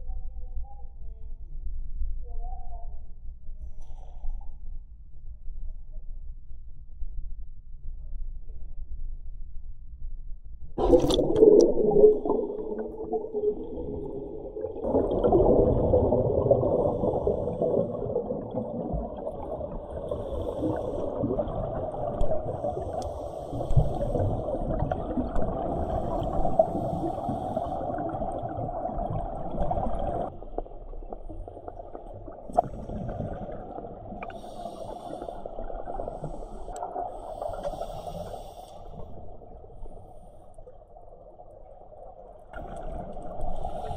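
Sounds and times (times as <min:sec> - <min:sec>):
exhaled bubbles gurgling: 0:10.8 - 0:38.3
underwater regulator breathing: 0:16.7 - 0:18.2, 0:20.0 - 0:21.4, 0:22.4 - 0:24.6, 0:25.7 - 0:28.2, 0:34.2 - 0:39.1.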